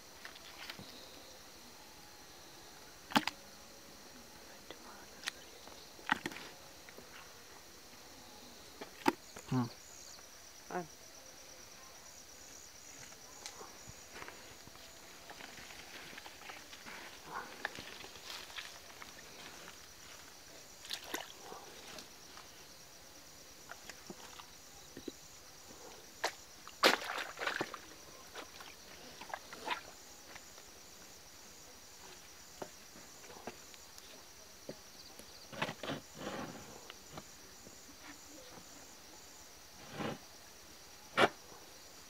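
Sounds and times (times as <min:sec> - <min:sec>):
crickets chirring: 0:00.0 - 0:42.0
footsteps: 0:13.0 - 0:20.4.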